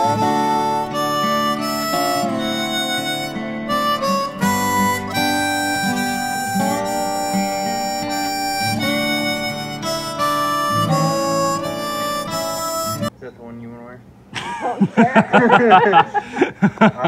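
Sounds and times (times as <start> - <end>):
harmonica playing: 0.0 - 13.1
guitar accompaniment: 0.0 - 13.2.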